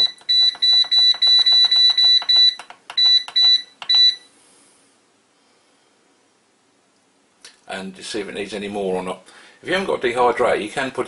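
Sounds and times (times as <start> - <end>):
short high-pitched beeps: 0.0 - 4.3.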